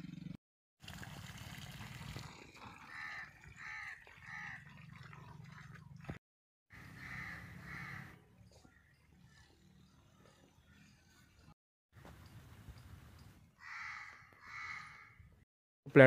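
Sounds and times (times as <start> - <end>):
crows cawing: 2.9 - 4.7, 6.8 - 8.8, 13.6 - 15.3.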